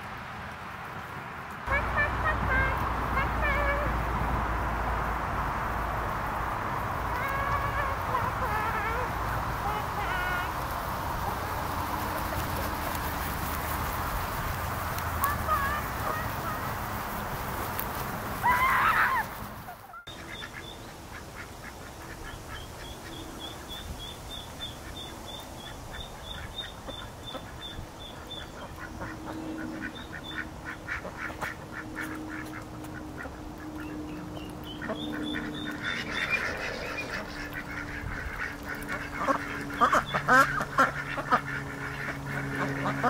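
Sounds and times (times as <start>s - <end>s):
geese and ducks quacking and honking: 1.7s - 4.4s, 6.7s - 23.9s, 24.6s - 43.0s
thin high peeping: 33.7s - 40.5s.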